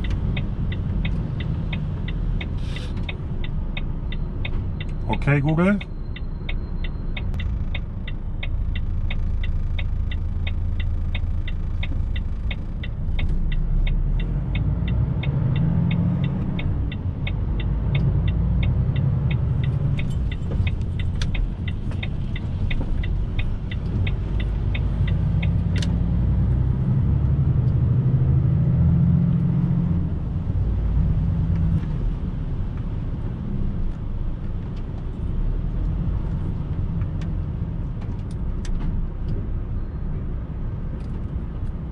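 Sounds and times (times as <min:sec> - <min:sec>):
indicator relay ticking: 0:00.0 - 0:26.0
truck engine and road noise: 0:00.0 - 0:41.9.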